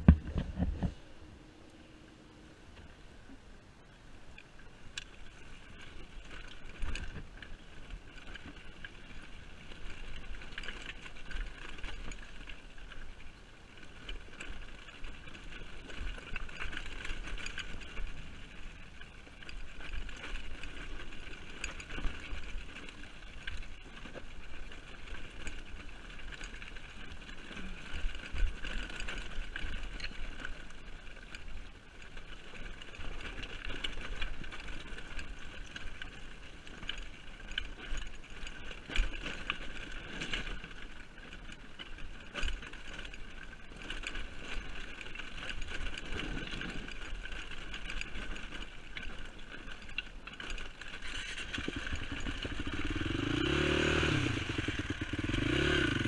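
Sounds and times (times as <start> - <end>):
knocks and bumps from terrain: 0.0 - 1.0
atv engine running: 0.0 - 3.1, 4.3 - 56.0.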